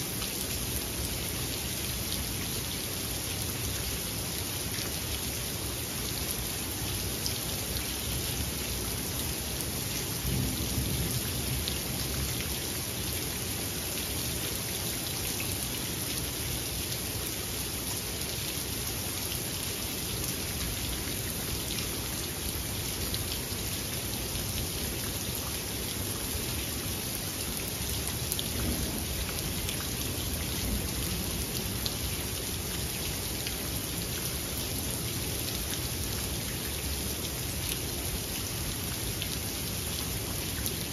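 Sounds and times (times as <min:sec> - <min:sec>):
steady rain: 0:00.0 - 0:40.9.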